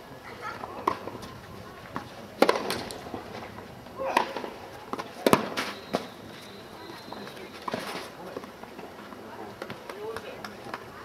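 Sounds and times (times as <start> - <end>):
tennis balls struck by rackets: 0.6 - 1.3, 1.9 - 3.1, 4.0 - 6.1
tennis balls bouncing on clay: 0.6 - 3.0, 4.1 - 6.1, 7.2 - 10.9.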